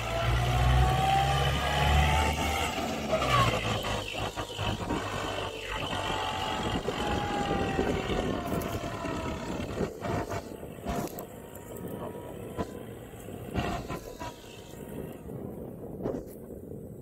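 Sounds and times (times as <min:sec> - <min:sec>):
tractor diesel engine running: 0:00.0 - 0:16.0
steady whine: 0:00.0 - 0:16.4.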